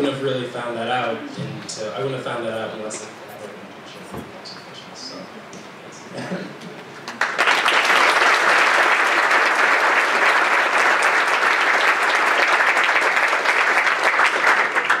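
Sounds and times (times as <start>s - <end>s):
audience applauding: 7.0s - 15.0s.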